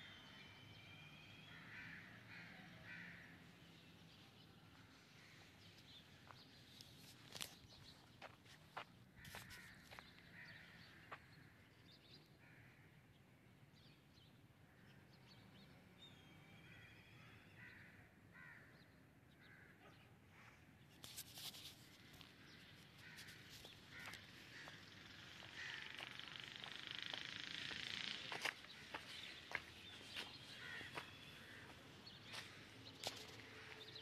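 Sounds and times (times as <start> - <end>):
faint crows cawing: 0.0 - 6.6, 8.2 - 13.9, 16.4 - 20.8, 21.7 - 34.0
small birds calling: 20.9 - 34.0.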